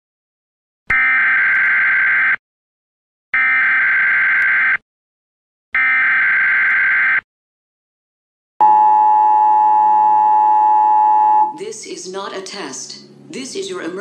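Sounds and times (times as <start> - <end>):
emergency alert buzzes: 0.9 - 2.4, 3.4 - 4.8, 5.8 - 7.2, 8.6 - 11.6.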